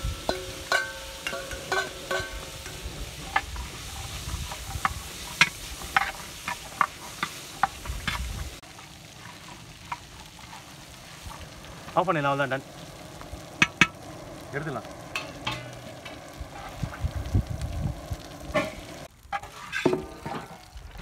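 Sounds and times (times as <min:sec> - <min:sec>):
metal spoon clinking and scraping pan: 0:00.0 - 0:11.3, 0:15.1 - 0:16.2.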